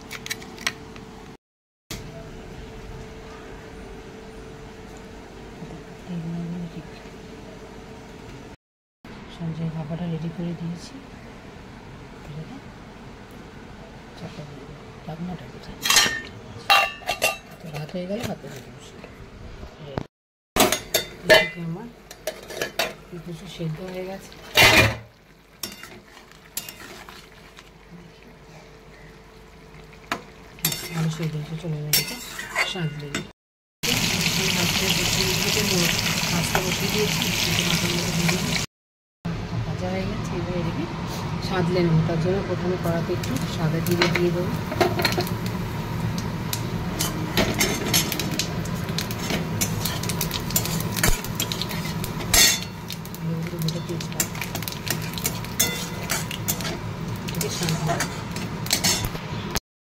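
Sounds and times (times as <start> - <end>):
faint simmer: 20.7 - 33.0
metal spatula scraping pan: 25.7 - 27.3
seeds crackling in hot oil: 33.8 - 38.7, 43.1 - 59.2.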